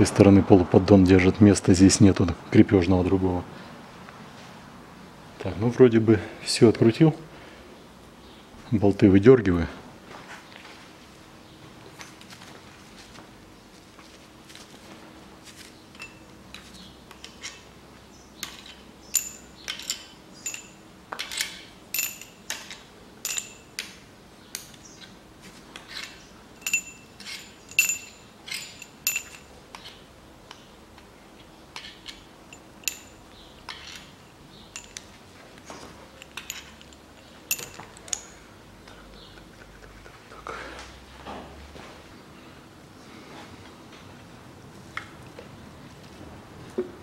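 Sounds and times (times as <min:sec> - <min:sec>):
metal bolts clinking: 0:15.9 - 0:17.7, 0:18.4 - 0:24.0, 0:25.8 - 0:30.0, 0:31.7 - 0:35.2, 0:36.0 - 0:38.4.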